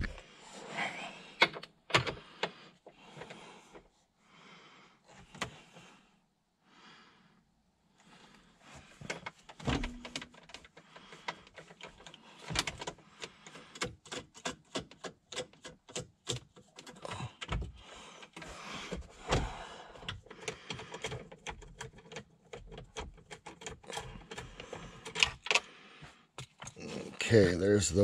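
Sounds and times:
screwdriver clicking and scraping: 9.0 - 17.5, 20.0 - 25.7.

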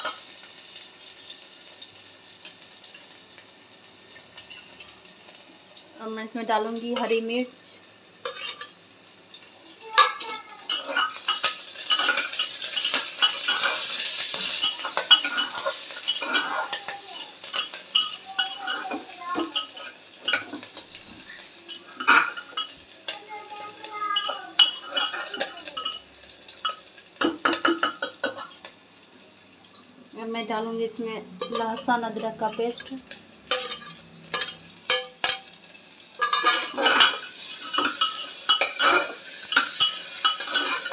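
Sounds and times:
onions sizzling in oil: 0.0 - 40.9
metal spatula scraping pot: 8.2 - 8.7, 10.0 - 22.8, 24.2 - 26.0, 31.4 - 35.5, 36.2 - 40.9.

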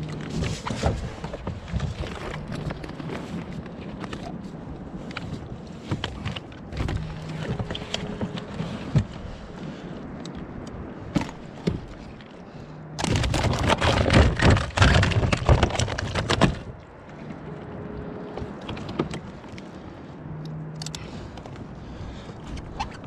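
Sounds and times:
knocking and clattering on kayak: 0.0 - 4.3, 11.1 - 12.1, 13.0 - 16.8.

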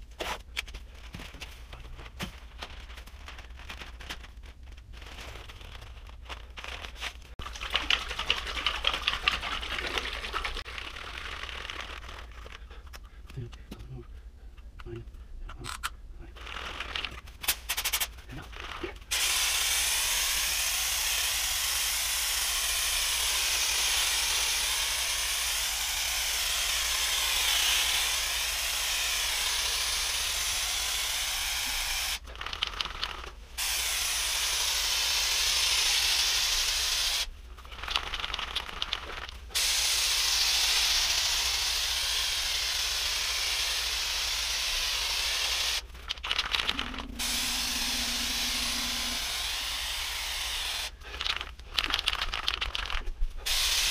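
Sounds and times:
spray can rattling when shaken: 6.7 - 12.6, 16.4 - 53.9
spray can hissing: 17.5 - 18.1, 19.1 - 32.2, 33.6 - 37.3, 39.5 - 52.5, 53.4 - 53.9.

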